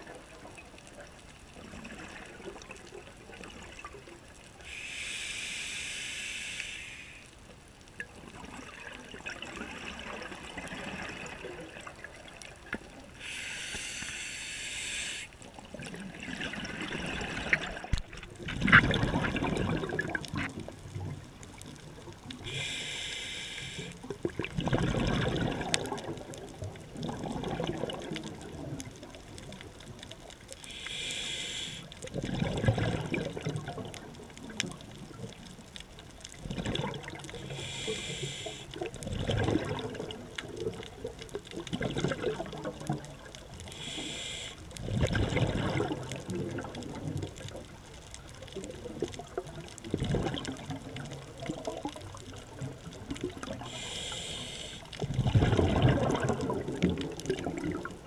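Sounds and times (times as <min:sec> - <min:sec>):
regulator inhalation hiss: 0:04.6 - 0:07.3, 0:13.2 - 0:15.4, 0:22.5 - 0:24.0, 0:30.7 - 0:31.9, 0:37.4 - 0:38.8, 0:43.7 - 0:44.7, 0:53.6 - 0:54.9
exhaled bubbles: 0:08.0 - 0:13.4, 0:14.8 - 0:22.8, 0:23.7 - 0:35.7, 0:36.3 - 0:58.0.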